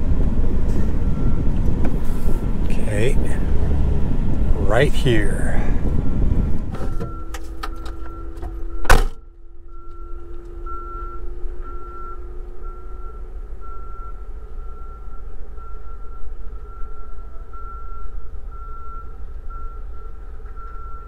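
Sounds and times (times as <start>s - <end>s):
backup alarm beeping: 1.0s - 1.6s, 6.8s - 21.0s
vehicle door slamming: 6.7s - 9.2s.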